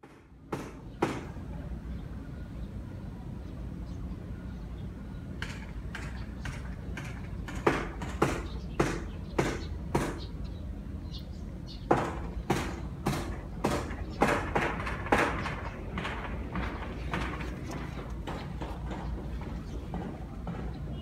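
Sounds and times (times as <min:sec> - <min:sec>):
footsteps outdoors: 0:05.2 - 0:21.0.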